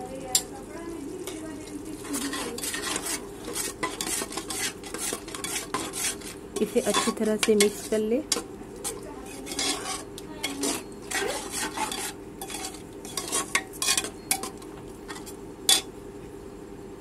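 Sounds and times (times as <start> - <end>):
metal spatula scraping pot: 1.2 - 15.9
spatula clacking on metal pot: 2.2 - 10.8.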